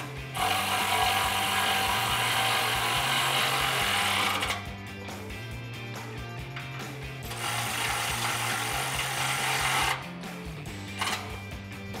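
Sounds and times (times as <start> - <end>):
power ratchet running: 0.0 - 4.8, 7.2 - 10.1, 10.9 - 11.5
faint background music: 0.0 - 12.0.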